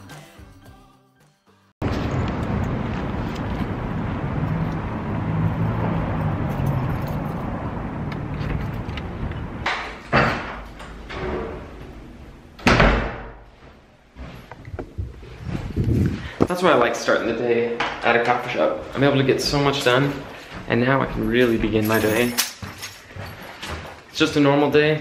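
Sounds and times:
door being unlocked and opened: 8.1s - 12.0s, 12.6s - 13.4s, 21.5s - 23.8s
door thump: 12.6s - 13.4s.

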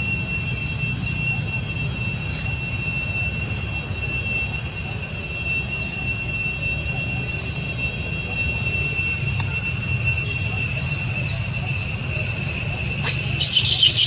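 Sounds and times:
insects droning: 12.5s - 14.0s.

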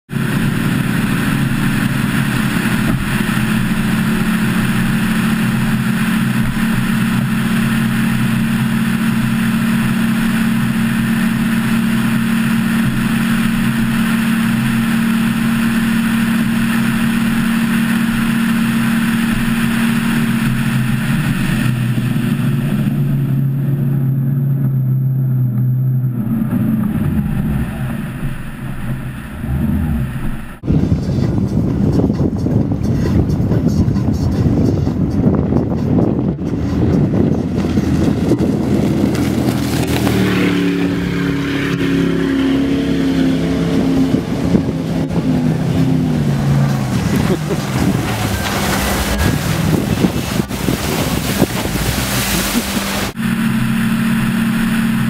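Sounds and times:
boat engine running: 0.0s - 55.0s
water rushing: 0.1s - 30.7s, 36.4s - 55.0s
wind rushing: 26.0s - 53.2s.

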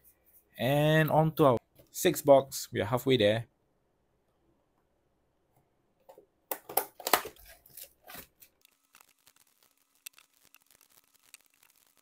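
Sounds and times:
plastic crackling and tearing: 6.6s - 12.0s.

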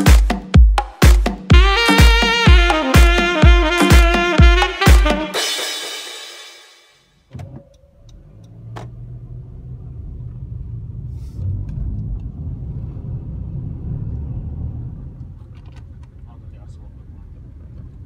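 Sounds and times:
car interior road rumble: 7.3s - 18.0s.

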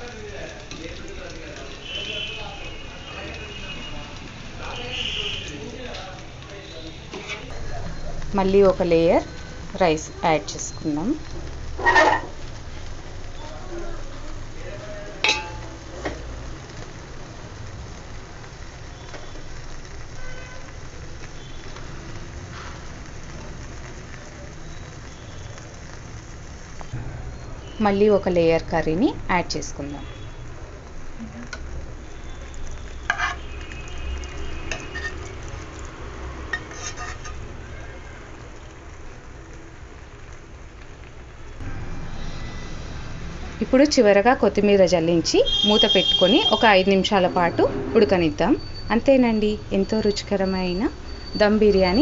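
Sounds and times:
spoon scraping steel pot: 7.1s - 7.5s, 33.1s - 33.4s, 34.7s - 35.3s, 36.5s - 37.4s
metal spoon clinking on pot: 15.2s - 15.7s, 33.1s - 33.4s, 34.7s - 35.3s.

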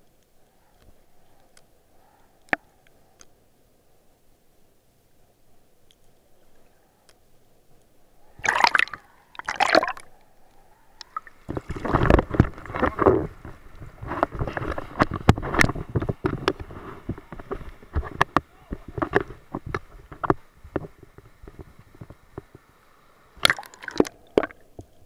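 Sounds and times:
water splashing against camera: 8.3s - 10.1s, 11.0s - 25.0s.

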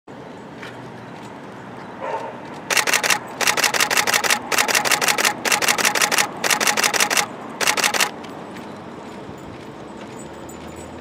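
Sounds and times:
faint outdoor background: 0.1s - 11.0s
camera shutters clicking: 2.7s - 8.2s.

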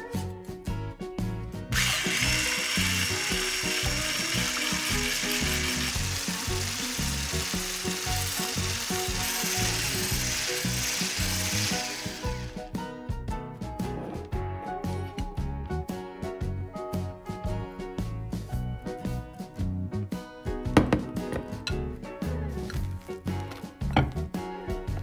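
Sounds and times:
background music: 0.0s - 25.0s
hand blender motor whine: 1.7s - 12.6s.

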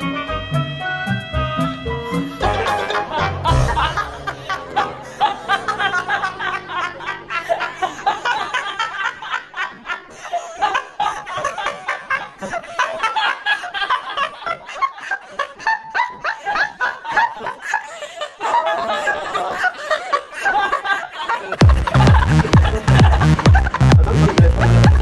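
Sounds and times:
background music: 0.0s - 9.0s, 21.6s - 25.0s
people laughing hard: 2.2s - 25.0s.

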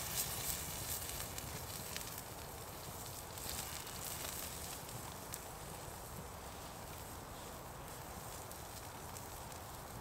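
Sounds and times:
campfire crackling: 0.0s - 10.0s
meat sizzling on a grill: 0.0s - 10.0s.

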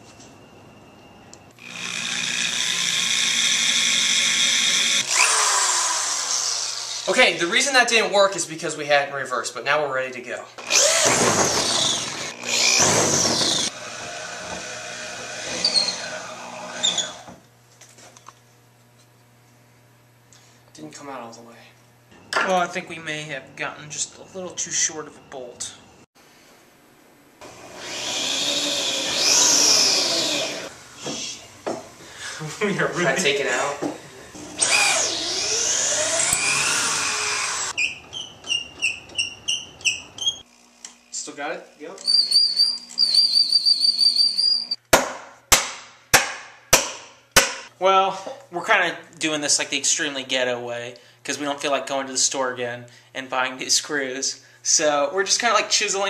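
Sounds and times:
power drill on metal: 1.6s - 7.2s, 10.6s - 17.4s, 27.4s - 30.7s, 34.4s - 37.8s
short high squeaks: 15.6s - 16.0s, 37.8s - 40.5s, 42.0s - 44.8s.

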